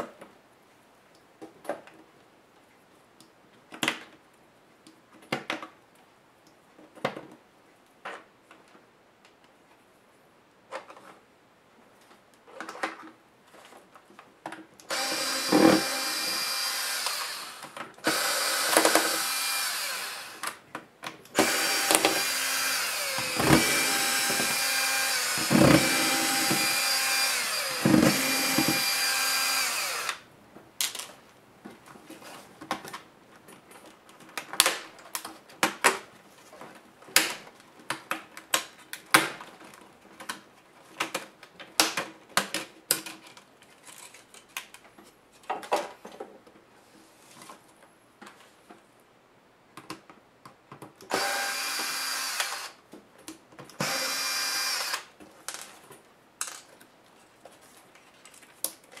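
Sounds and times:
electric screwdriver whine: 14.9s - 20.6s, 21.4s - 30.2s, 51.1s - 52.8s, 53.8s - 55.1s.

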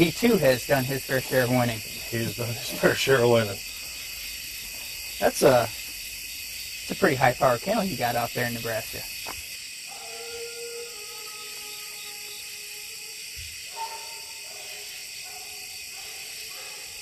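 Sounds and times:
night insects chorus: 0.0s - 17.0s
distant hound bawling: 9.9s - 17.0s.

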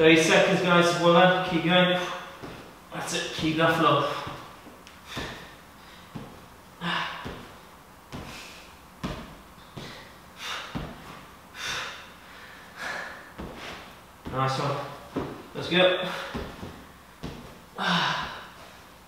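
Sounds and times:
man breathing hard: 4.0s - 7.6s, 8.2s - 8.8s, 9.6s - 14.0s, 16.0s - 16.6s, 17.2s - 19.0s.

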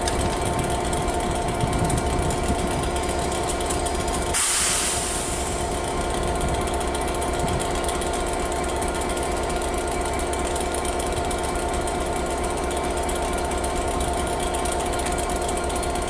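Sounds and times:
diesel train engine humming: 0.0s - 16.0s
brief hissing rush: 4.4s - 5.6s.

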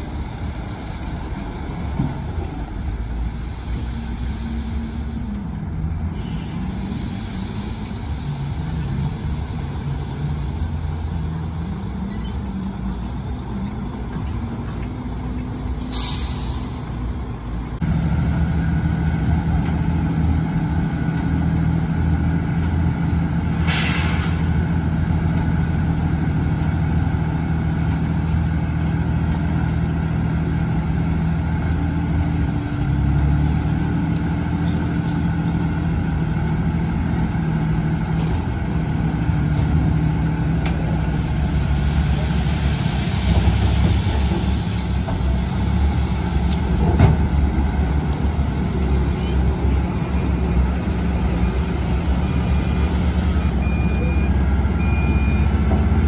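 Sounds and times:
diesel truck engines running: 0.0s - 56.0s
sharp hiss of air: 15.8s - 17.0s, 23.6s - 24.6s.

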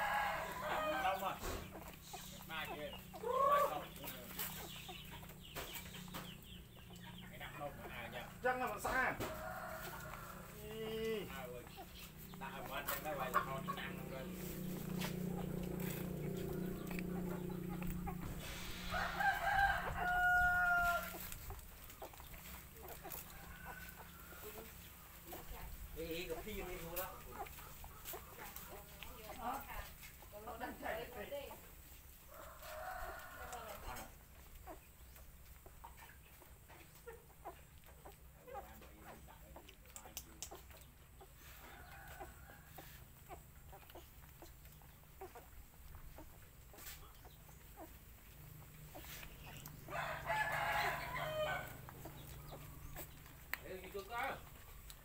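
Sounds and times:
rooster crowing: 0.0s - 1.4s, 8.9s - 10.7s, 18.2s - 21.2s, 32.3s - 34.1s, 49.9s - 51.9s
faint chicken clucking: 0.0s - 55.0s.

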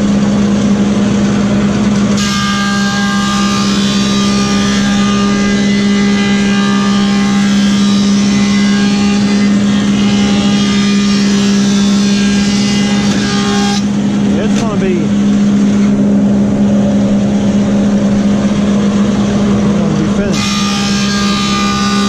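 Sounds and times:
planer motor hum: 0.0s - 22.0s
cutterhead cutting board: 20.2s - 22.0s.

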